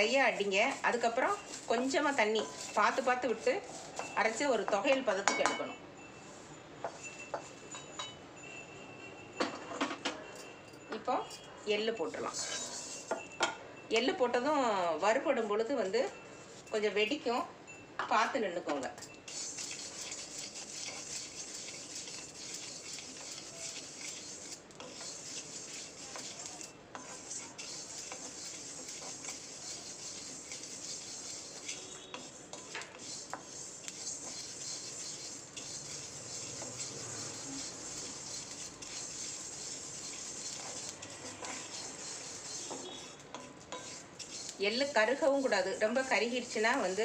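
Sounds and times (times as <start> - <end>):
spatula scraping seeds in pan: 0.0 - 5.2, 12.1 - 13.3, 19.0 - 47.0.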